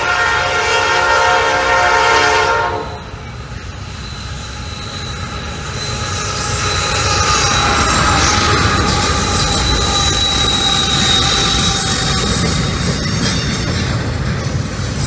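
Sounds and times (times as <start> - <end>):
locomotive air horn: 0.0 - 3.0
locomotive rumble and wheels on rails: 0.0 - 15.0
thin high whine: 3.0 - 12.2.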